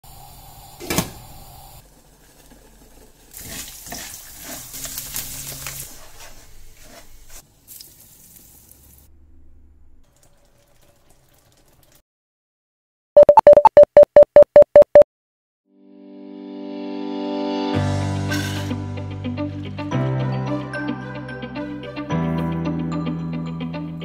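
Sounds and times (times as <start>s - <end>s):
spatula scraping a pan: 3.3s - 7.4s
spoon stirring thick curry: 3.4s - 7.4s.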